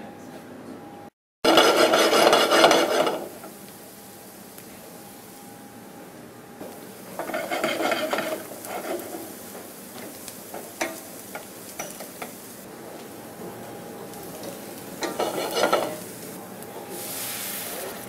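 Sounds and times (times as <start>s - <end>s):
wooden spoon scraping saucepan: 1.4s - 3.5s, 7.1s - 12.4s, 14.4s - 16.1s
shallots sizzling in butter: 6.6s - 18.0s
spoon knocking on pan: 9.5s - 12.4s.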